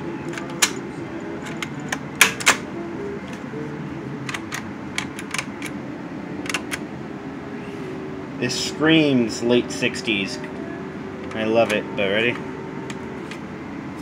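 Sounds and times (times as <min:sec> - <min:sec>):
tape buttons clicking: 0:00.2 - 0:03.5, 0:04.2 - 0:05.8, 0:06.4 - 0:06.9, 0:10.4 - 0:13.5
cassette player clicks and clacks: 0:00.3 - 0:00.8, 0:04.2 - 0:05.8, 0:06.4 - 0:06.9.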